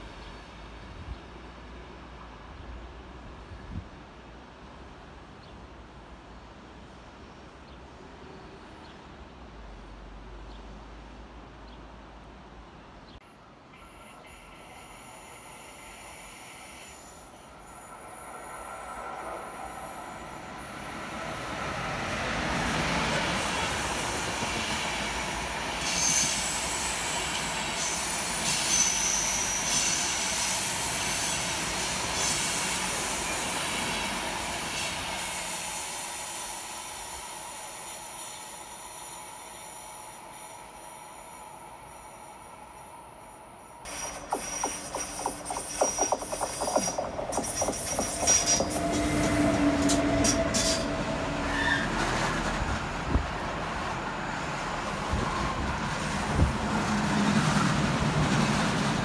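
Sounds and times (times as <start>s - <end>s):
train passing: 13.2s - 59.0s
train wheels squealing: 13.8s - 54.4s.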